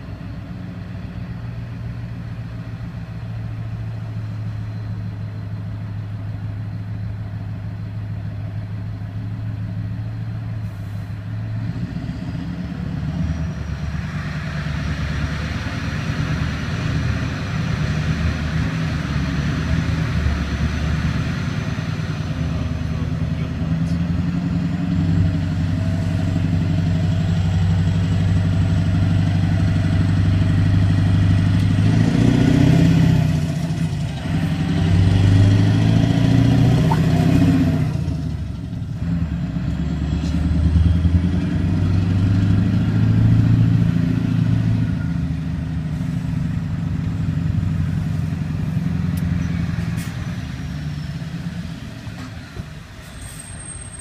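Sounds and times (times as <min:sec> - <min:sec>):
road noise: 0:00.0 - 0:54.0
car engine running: 0:33.5 - 0:39.0.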